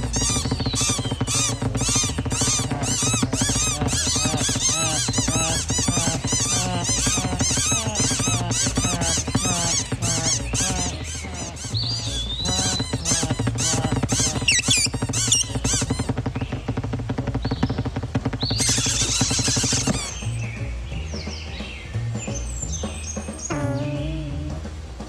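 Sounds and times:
cartoon birds chattering and squawking: 0:00.0 - 0:17.8, 0:18.5 - 0:20.3
background music: 0:00.0 - 0:25.0.

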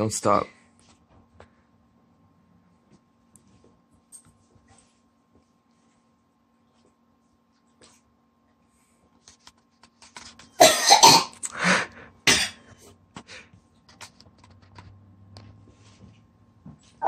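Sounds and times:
boy coughing and sputtering: 0:10.6 - 0:11.4, 0:12.2 - 0:12.6.

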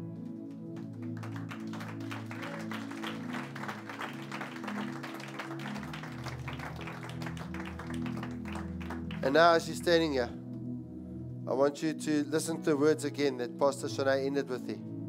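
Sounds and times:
soft church music: 0:00.0 - 0:15.0
scattered applause: 0:00.6 - 0:10.0.

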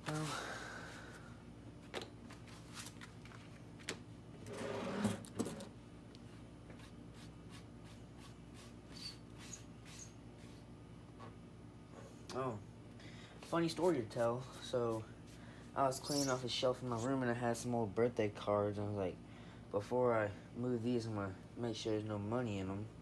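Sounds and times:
mould scraping on wooden table: 0:04.4 - 0:05.6.

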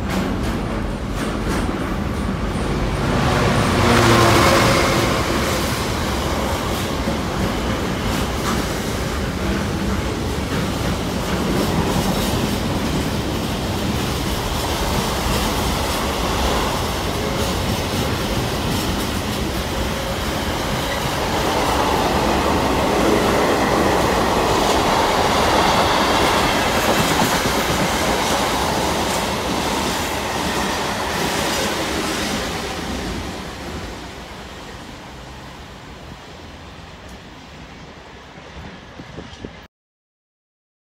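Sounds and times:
train wheels clicking on rail joints: 0:00.0 - 0:03.6, 0:04.3 - 0:33.8.

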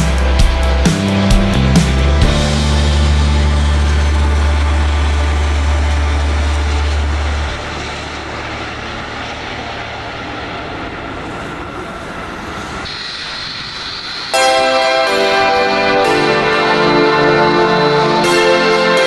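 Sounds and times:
high steady whine: 0:00.0 - 0:19.0
jet engine roar: 0:00.0 - 0:19.0
low steady hum: 0:02.4 - 0:12.6.

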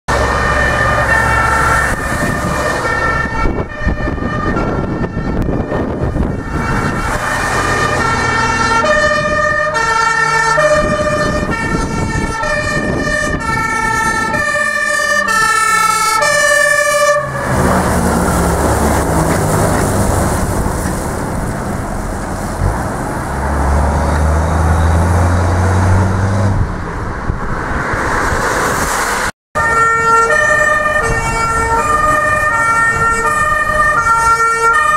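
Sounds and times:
two-tone fire engine sirens: 0:00.1 - 0:26.1, 0:29.6 - 0:34.9
heavy truck engine rumble: 0:00.1 - 0:34.9
tyres hissing on wet road: 0:17.2 - 0:25.2, 0:28.0 - 0:29.3.

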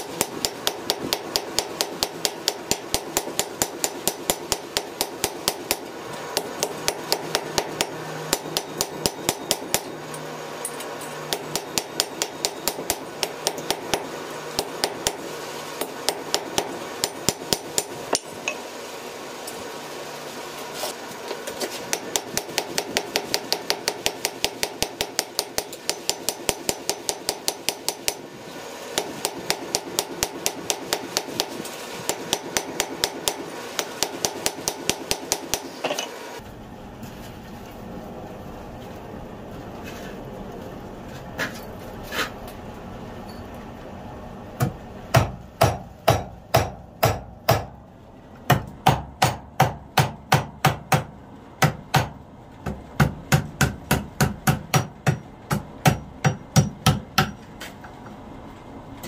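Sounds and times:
hammer ringing on an anvil: 0:06.9 - 0:13.7.

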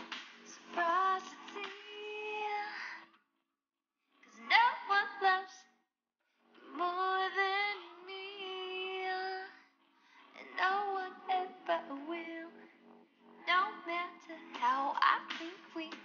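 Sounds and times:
person singing: 0:00.0 - 0:02.9, 0:10.4 - 0:12.6, 0:13.5 - 0:16.0.

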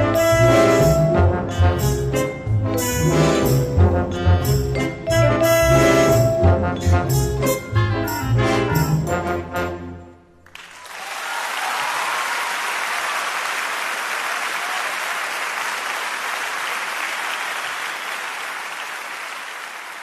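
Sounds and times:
orchestral chord with brass: 0:00.0 - 0:10.0
audience applauding: 0:10.4 - 0:20.0.

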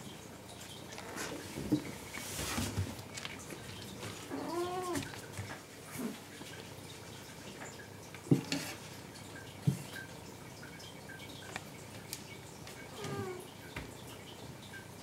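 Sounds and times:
cat meowing: 0:04.3 - 0:05.0.

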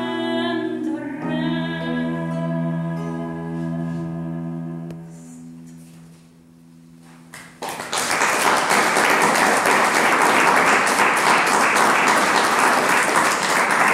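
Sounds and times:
audience applause: 0:07.4 - 0:13.9.

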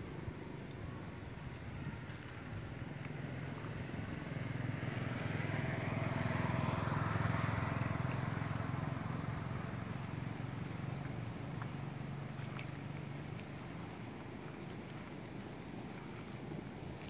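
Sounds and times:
vehicle engine passing by: 0:02.8 - 0:13.9.

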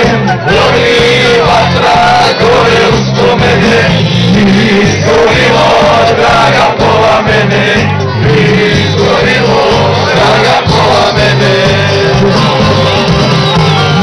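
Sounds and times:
bass line: 0:00.0 - 0:14.0
guitars: 0:00.0 - 0:14.0
live band playing pop-folk song: 0:00.0 - 0:14.0
person singing: 0:00.0 - 0:14.0.

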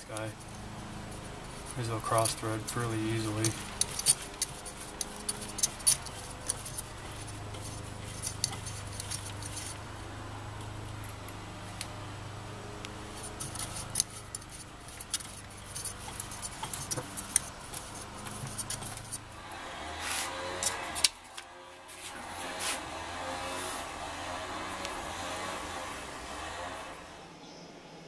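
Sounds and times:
plastic impeller clicking and scraping: 0:00.0 - 0:09.8, 0:13.1 - 0:19.5
steady low hum: 0:00.0 - 0:28.0.

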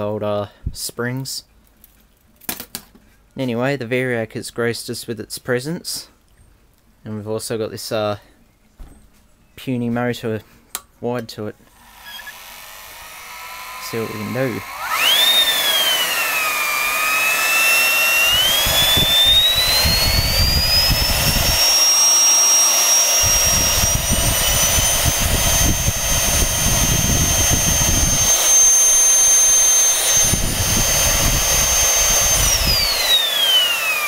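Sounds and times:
vacuum cleaner motor whine: 0:11.7 - 0:34.0.

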